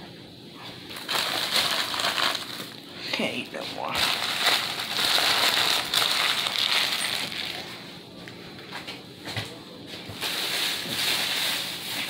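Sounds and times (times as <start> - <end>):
paper wrappers crinkling: 0.9 - 2.9, 3.6 - 7.8, 10.2 - 12.0.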